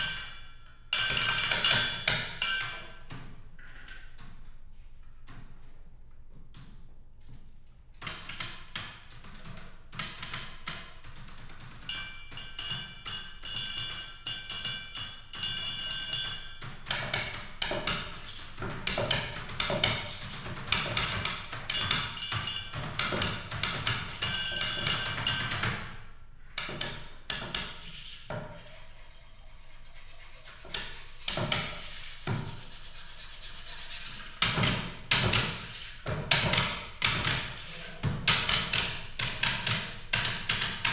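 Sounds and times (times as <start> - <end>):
tapping on office supplies: 15.4 - 25.9, 34.4 - 40.9.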